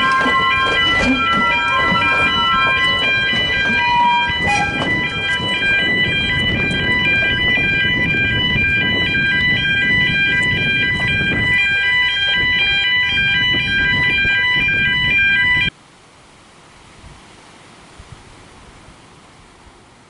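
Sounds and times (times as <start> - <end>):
level crossing alarm tones: 0.0 - 15.7
train rumbling past: 0.0 - 15.7.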